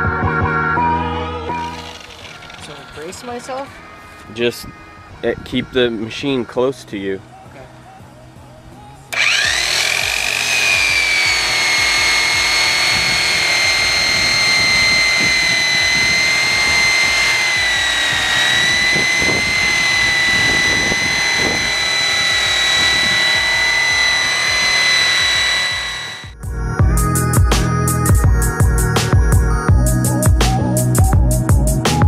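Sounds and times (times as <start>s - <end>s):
angle grinder whining: 0.8s - 3.9s, 9.1s - 27.3s.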